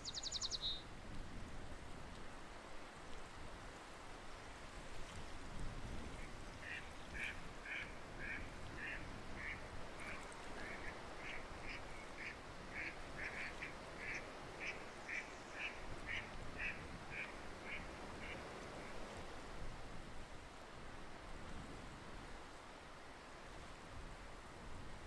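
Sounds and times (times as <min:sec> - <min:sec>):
background hiss: 0:00.0 - 0:00.8
ducks quacking: 0:06.7 - 0:18.4.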